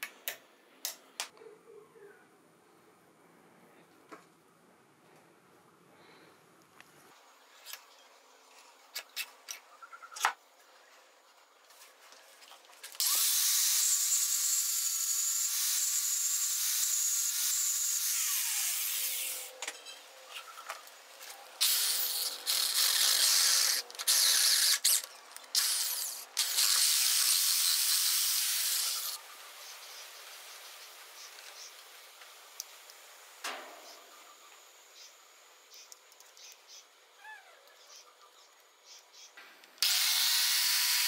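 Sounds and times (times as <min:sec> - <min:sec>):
electric drill boring through metal: 0:13.0 - 0:19.5, 0:25.6 - 0:29.2, 0:39.8 - 0:41.0.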